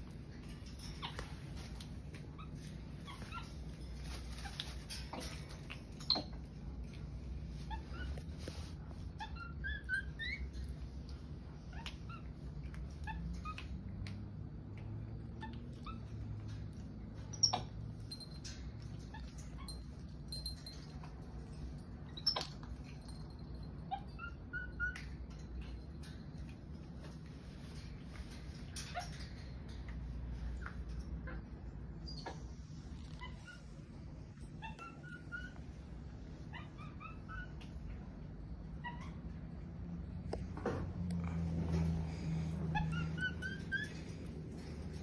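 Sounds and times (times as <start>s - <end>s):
monkeys squeaking and chirping: 0.7s - 6.4s, 7.6s - 10.8s, 15.3s - 16.4s, 17.2s - 18.3s, 22.1s - 23.2s, 23.8s - 25.8s, 32.0s - 33.7s, 34.4s - 35.9s, 36.5s - 37.8s, 42.0s - 45.0s.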